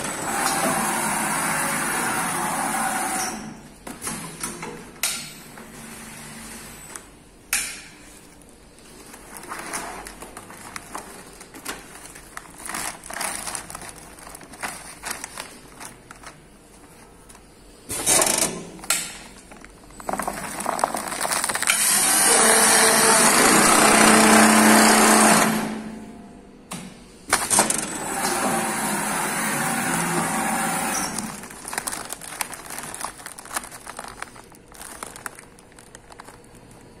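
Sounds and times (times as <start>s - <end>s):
sewing machine running: 20.1s - 25.9s, 27.7s - 35.9s.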